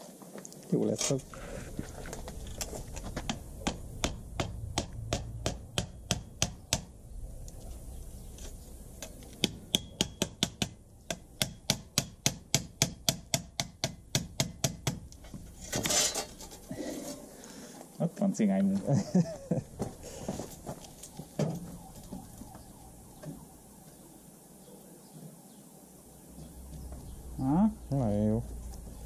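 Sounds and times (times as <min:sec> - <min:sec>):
scraping rustle: 0:00.0 - 0:03.2, 0:15.2 - 0:17.4.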